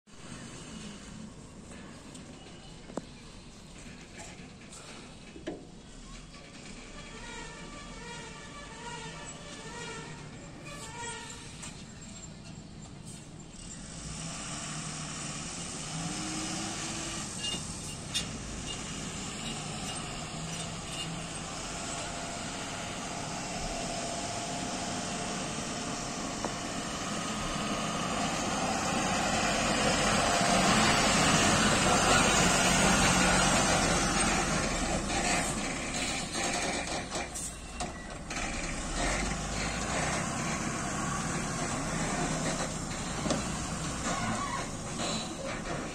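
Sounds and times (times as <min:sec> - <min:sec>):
diesel truck engine passing: 0:11.6 - 0:45.9.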